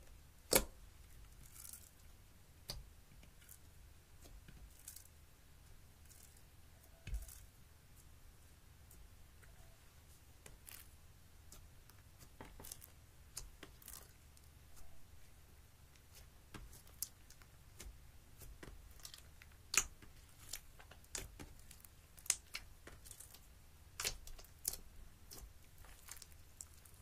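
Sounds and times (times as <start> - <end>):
slime popping and crackling: 11.6 - 14.2, 16.1 - 27.0.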